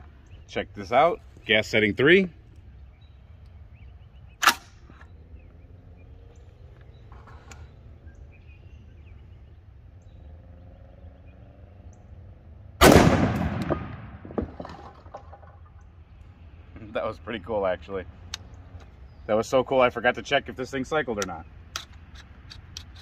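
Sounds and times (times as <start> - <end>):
rifle shot: 4.4 - 4.8, 12.8 - 14.8
sharp metallic clicks: 21.0 - 23.0.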